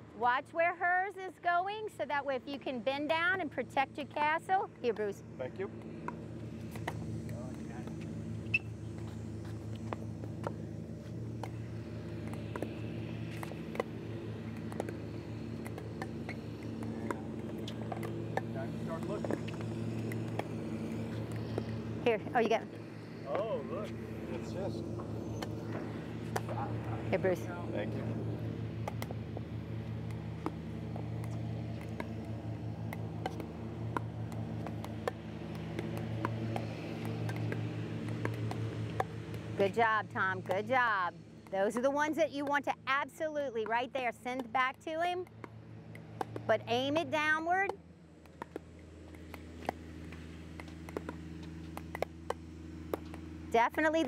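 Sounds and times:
low hum: 0:00.0 - 0:54.0
paddles striking plastic balls: 0:30.0 - 0:39.5, 0:41.4 - 0:53.3
paddles hitting plastic balls: 0:43.8 - 0:53.3.

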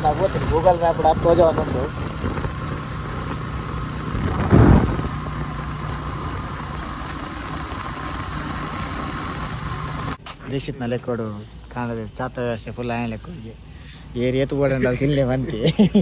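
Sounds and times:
motorcycle engine running: 0:00.0 - 0:10.2.

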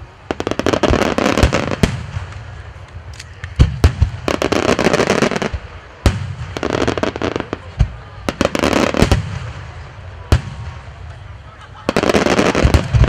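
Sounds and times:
firework booms: 0:00.0 - 0:02.8, 0:03.4 - 0:11.1, 0:11.9 - 0:13.0
firework crackling: 0:00.0 - 0:13.0.

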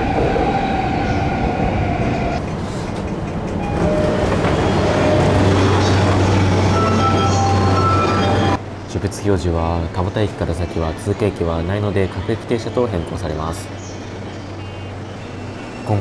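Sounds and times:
train running noise: 0:00.0 - 0:16.0
train motor whine: 0:03.6 - 0:08.6.

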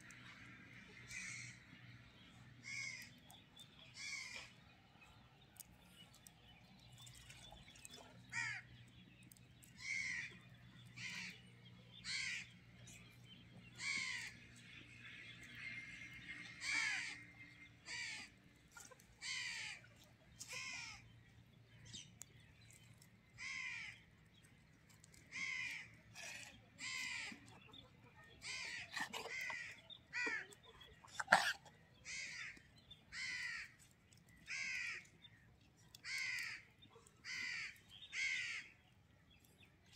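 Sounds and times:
crow cawing: 0:02.6 - 0:03.1, 0:12.0 - 0:12.5, 0:32.1 - 0:33.7, 0:34.5 - 0:35.1, 0:36.0 - 0:36.6, 0:37.2 - 0:38.7.

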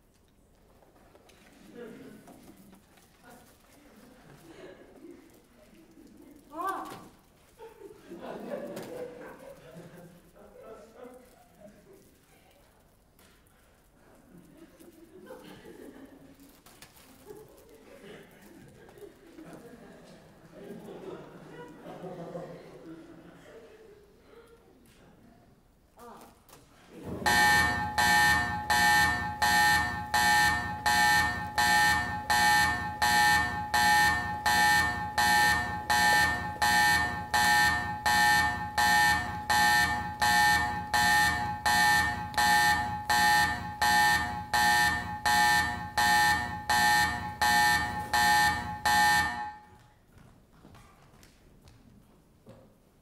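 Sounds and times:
electronic alarm pulses: 0:27.2 - 0:49.7.

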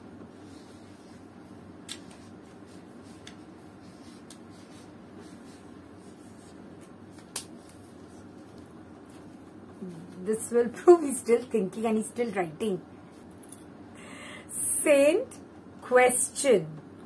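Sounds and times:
low room hum: 0:00.0 - 0:17.0
marker pen writing: 0:01.9 - 0:06.6.

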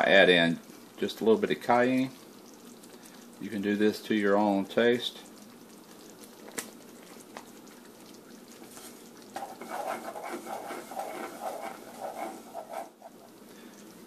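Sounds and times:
spatula stirring thick sauce: 0:07.1 - 0:13.4.

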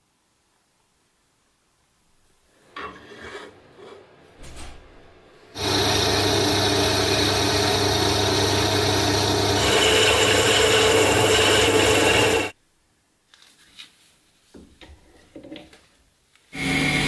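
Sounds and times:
drill press cutting metal: 0:05.6 - 0:12.5, 0:16.6 - 0:17.0.

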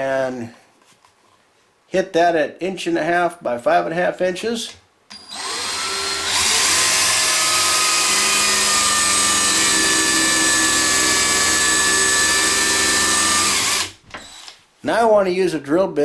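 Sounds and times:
power drill drilling into wood: 0:05.1 - 0:14.6.

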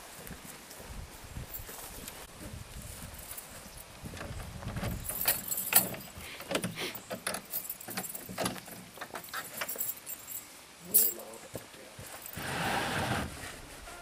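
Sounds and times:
footsteps on the ground: 0:00.0 - 0:06.3
keys jangling in a door lock: 0:05.0 - 0:06.6.

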